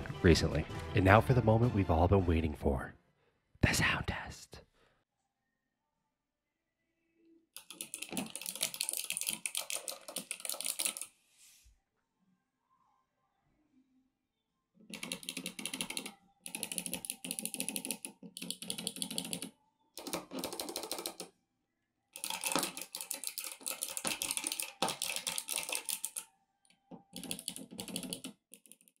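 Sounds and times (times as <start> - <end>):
mechanical keyboard typing: 7.6 - 11.1, 14.9 - 21.3, 22.2 - 26.3, 27.1 - 29.0.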